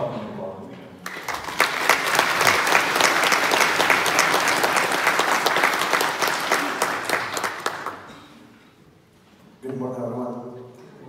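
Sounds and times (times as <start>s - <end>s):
crowd applauding: 1.0s - 8.4s.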